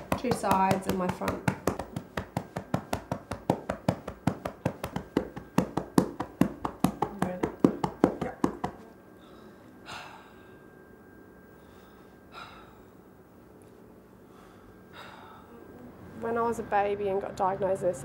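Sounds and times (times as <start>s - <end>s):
cupped hand clapping on chest: 0.0s - 8.8s.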